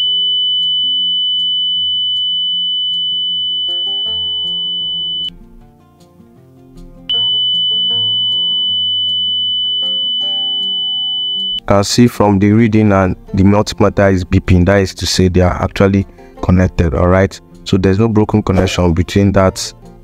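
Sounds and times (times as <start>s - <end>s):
multimeter high-pitched beep: 0.0s - 5.3s, 7.1s - 11.6s
background music: 3.7s - 20.0s.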